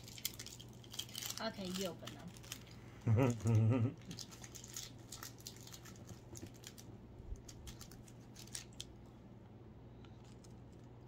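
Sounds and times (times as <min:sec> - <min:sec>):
plastic wrapper crinkling: 0:00.0 - 0:02.8, 0:04.0 - 0:09.0.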